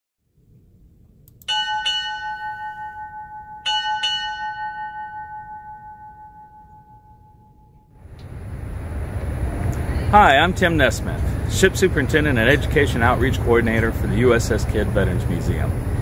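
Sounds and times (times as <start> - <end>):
ship's bell ringing: 1.4 - 8.1.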